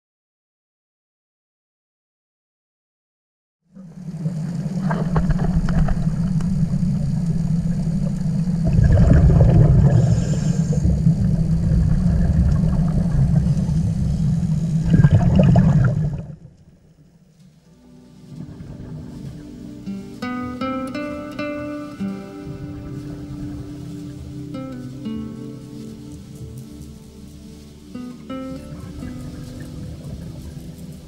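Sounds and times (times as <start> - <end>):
low underwater drone: 3.7 - 31.0
scuba exhalation bubbles: 4.1 - 16.6.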